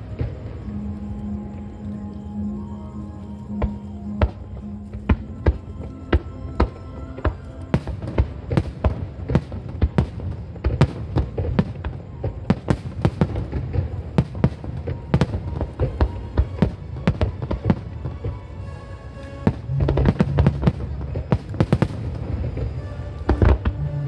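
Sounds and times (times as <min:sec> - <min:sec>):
music playing: 0:00.0 - 0:10.3, 0:11.9 - 0:24.0
fireworks bangs and cracks: 0:05.0 - 0:18.0, 0:19.4 - 0:23.8.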